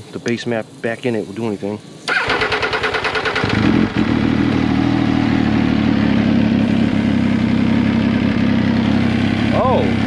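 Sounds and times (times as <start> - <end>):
motorcycle electric starter: 2.1 - 4.2
motorcycle engine idling: 2.1 - 10.0.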